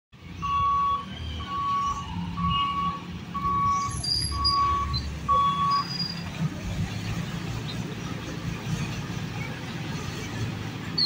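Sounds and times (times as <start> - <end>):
level crossing warning beeps: 0.4 - 5.9.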